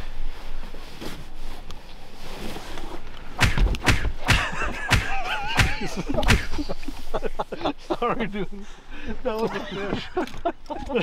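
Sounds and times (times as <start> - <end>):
fish tail slapping thuds: 3.4 - 6.6.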